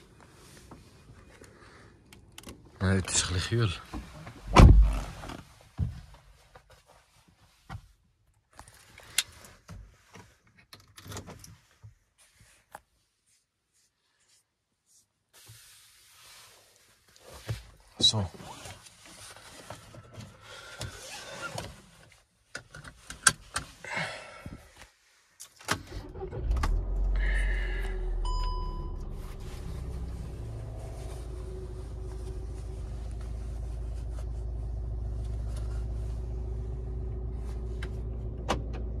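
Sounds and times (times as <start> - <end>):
clicks and rustles in car: 7.6 - 12.0, 17.2 - 23.8
car engine starting and idling: 25.6 - 39.0
electronic dashboard chime: 28.2 - 29.3.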